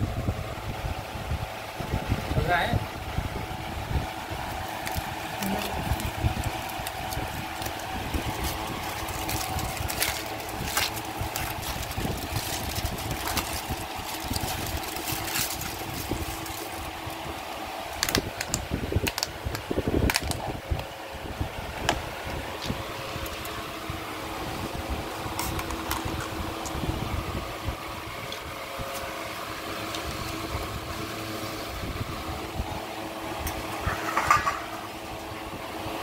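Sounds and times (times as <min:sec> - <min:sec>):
steady background hum: 0:00.0 - 0:36.0
aluminium foil crinkling: 0:04.3 - 0:19.3, 0:25.2 - 0:26.8.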